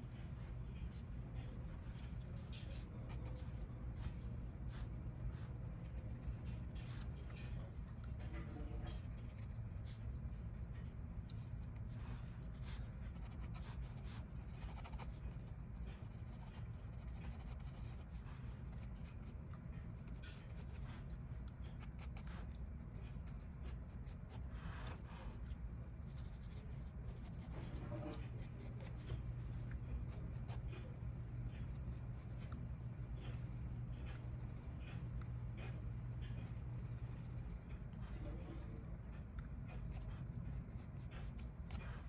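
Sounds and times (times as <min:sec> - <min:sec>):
steady low hum: 0:00.0 - 0:42.0
pencil scratching on paper: 0:00.7 - 0:07.6, 0:08.9 - 0:42.0.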